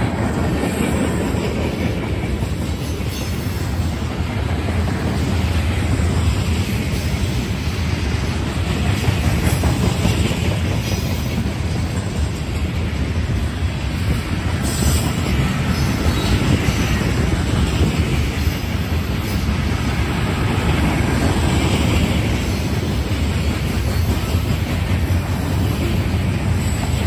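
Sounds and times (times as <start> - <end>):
train wheels rumbling on rails: 0.0 - 27.0.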